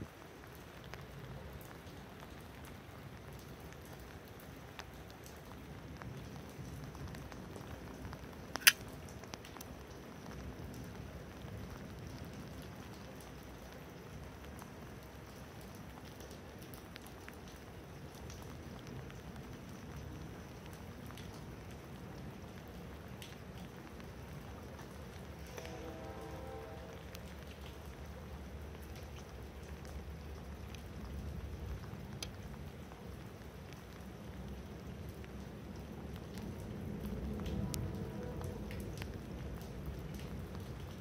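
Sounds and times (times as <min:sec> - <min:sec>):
light rain pattering: 0:00.0 - 0:41.0
folding knife blade snapping open: 0:08.6 - 0:08.8.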